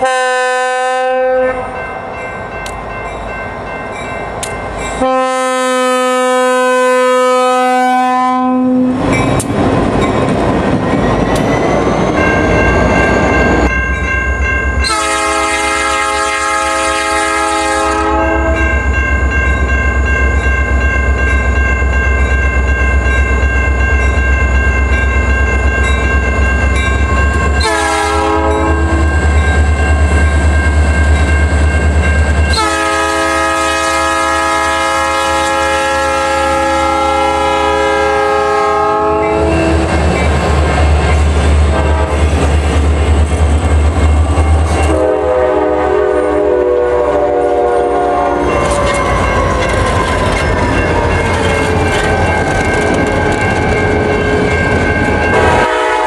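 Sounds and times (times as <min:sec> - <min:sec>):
diesel locomotive horn blasts: 0:00.0 - 0:01.8, 0:05.0 - 0:09.0, 0:14.8 - 0:18.8, 0:27.6 - 0:29.2, 0:32.5 - 0:39.9, 0:41.7 - 0:42.3, 0:44.7 - 0:49.9, 0:55.2 - 0:56.0.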